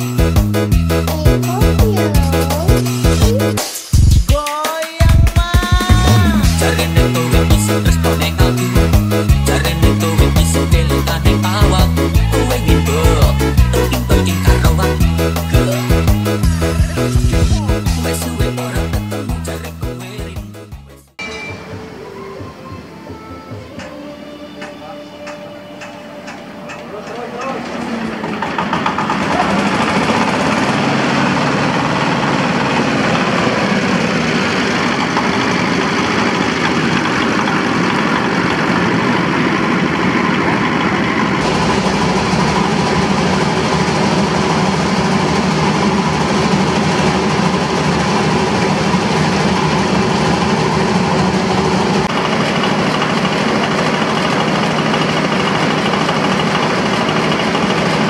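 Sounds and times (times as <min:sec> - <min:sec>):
diesel engine running: 0:00.0 - 0:04.3, 0:05.0 - 0:21.0, 0:23.7 - 0:58.0
shelling machine rattle: 0:52.1 - 0:58.0.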